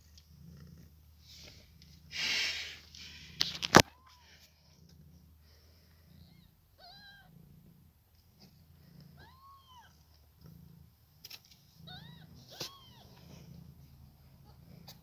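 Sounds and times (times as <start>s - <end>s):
soft low purr: 0.0s - 2.2s, 3.3s - 15.0s
kittens mewing: 11.8s - 13.3s.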